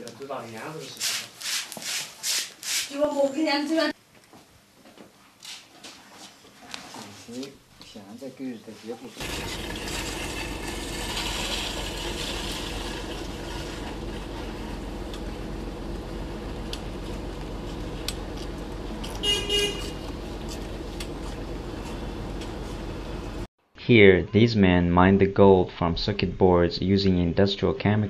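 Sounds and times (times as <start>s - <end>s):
street traffic noise: 9.2s - 23.5s
vehicle horn toot: 19.0s - 20.1s.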